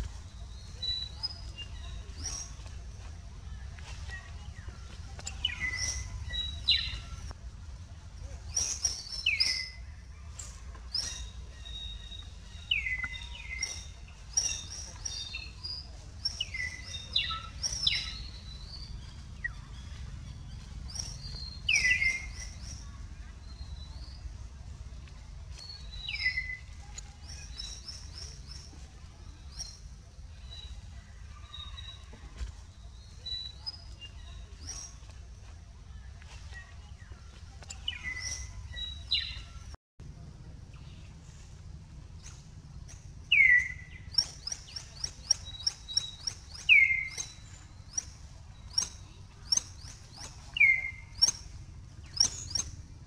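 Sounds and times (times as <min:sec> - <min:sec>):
steady low rumble: 0:00.0 - 0:53.0
high chirping calls: 0:03.8 - 0:07.3, 0:08.2 - 0:24.4, 0:25.5 - 0:30.8, 0:37.3 - 0:39.8, 0:42.2 - 0:53.0.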